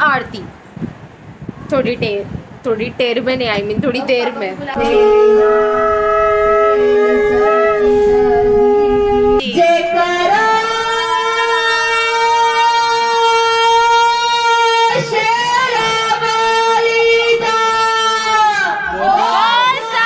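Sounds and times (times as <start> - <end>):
conch shells blown: 4.8 - 9.4.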